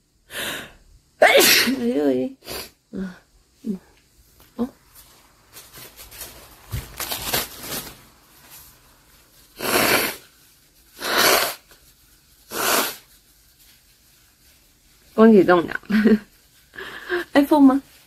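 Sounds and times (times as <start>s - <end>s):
breathing: 0.3s - 0.8s, 16.7s - 17.3s
woman blowing her nose: 0.3s - 1.8s, 2.4s - 2.8s, 9.6s - 10.3s, 10.9s - 11.8s, 12.4s - 13.1s
tissue rustling: 3.8s - 18.0s.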